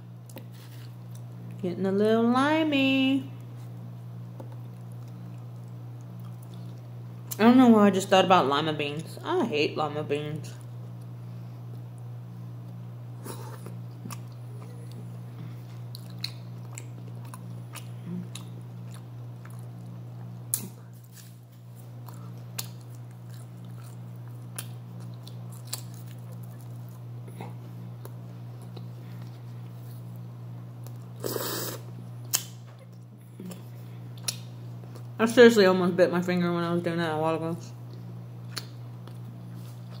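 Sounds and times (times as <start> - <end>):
person chewing food: 4.4 - 7.0, 13.2 - 30.2.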